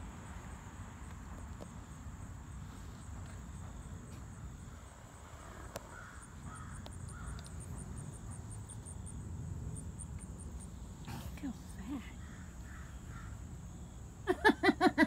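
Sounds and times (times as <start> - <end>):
high thin insect trill: 1.2 - 14.0
faint clicks: 6.8 - 7.6.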